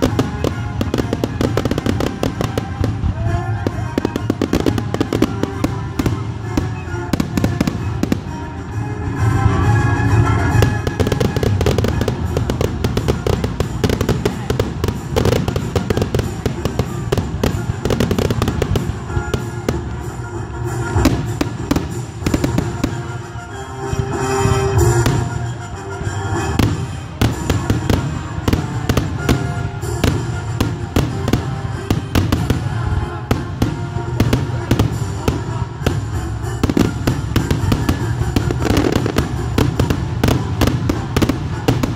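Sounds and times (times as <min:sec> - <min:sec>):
fireworks bangs and crackling: 0:00.0 - 0:41.9.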